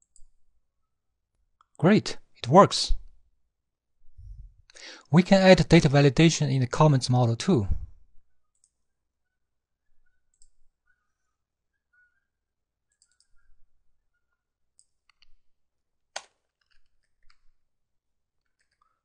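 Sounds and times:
mouse and keyboard clicks: 12.9 - 13.5, 14.8 - 15.4.

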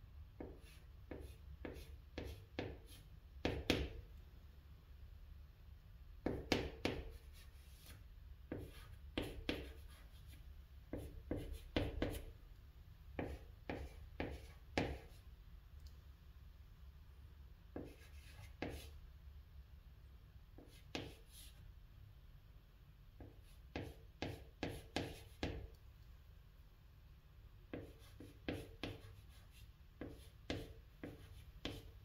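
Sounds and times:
chalk writing on chalkboard: 0.4 - 4.0, 6.2 - 12.3, 13.2 - 15.3, 17.7 - 19.0, 20.6 - 21.6, 23.2 - 25.7, 27.7 - 32.0.

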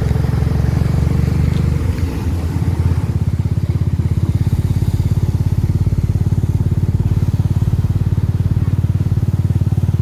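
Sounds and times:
motorcycle engine: 0.0 - 10.0.

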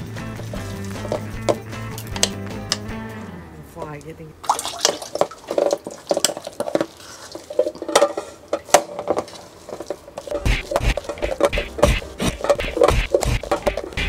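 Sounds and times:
wet squishing of fish paste: 4.4 - 7.9.

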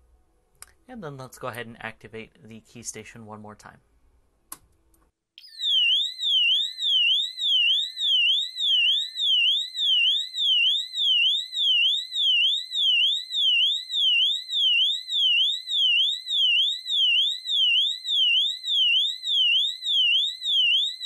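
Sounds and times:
fire alarm siren sweeping: 5.4 - 21.0.

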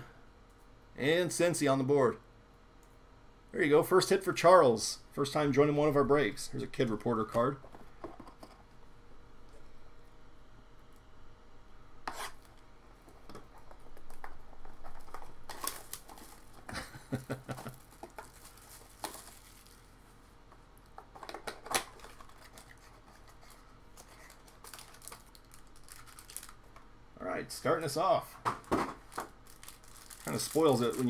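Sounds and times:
cardboard and plastic rustling: 13.0 - 20.3, 20.9 - 26.6, 28.4 - 31.0.

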